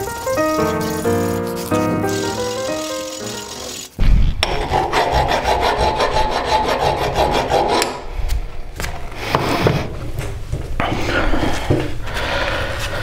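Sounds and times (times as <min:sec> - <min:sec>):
hand file rasping on steel: 0:00.0 - 0:08.0.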